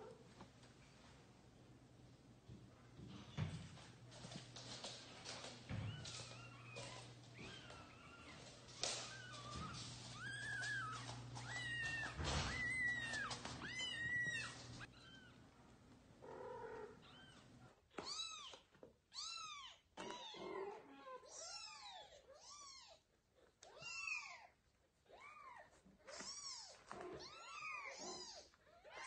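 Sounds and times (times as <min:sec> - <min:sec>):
kittens meowing: 0:05.7 - 0:15.4, 0:25.1 - 0:29.0.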